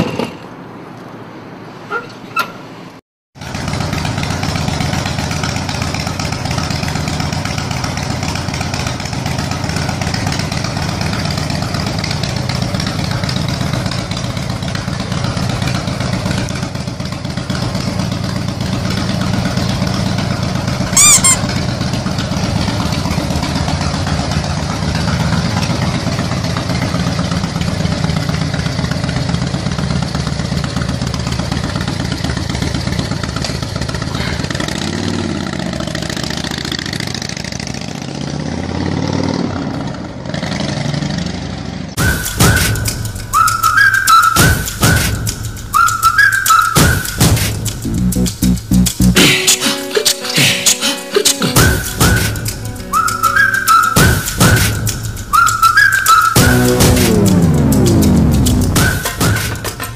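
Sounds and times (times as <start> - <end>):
motorcycle engine rumble: 3.4 - 38.3, 47.0 - 49.3, 53.9 - 59.9
high-pitched chirp: 21.0 - 21.4, 47.8 - 59.4.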